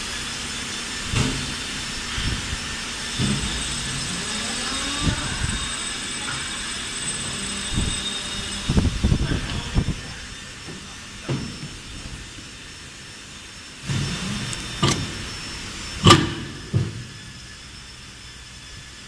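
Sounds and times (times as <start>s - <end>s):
moulding press hissing: 0.0s - 19.0s
metal clanks and knocks: 14.8s - 15.2s, 16.0s - 17.0s.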